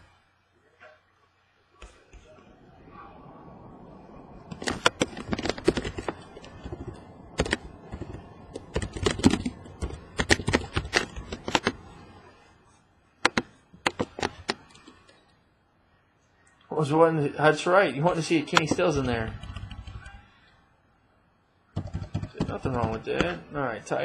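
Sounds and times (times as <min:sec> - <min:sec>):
typing on laptop keyboard: 0:04.5 - 0:12.0, 0:13.2 - 0:15.2, 0:18.5 - 0:20.2, 0:21.8 - 0:23.4.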